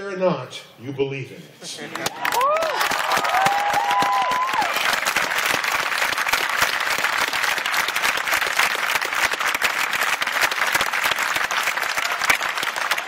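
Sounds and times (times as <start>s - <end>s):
large crowd applauding: 1.8s - 13.0s.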